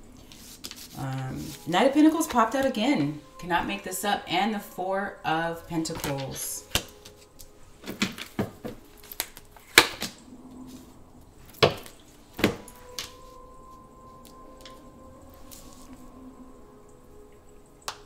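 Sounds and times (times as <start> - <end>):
cards snapping and tapping: 7.9 - 10.2.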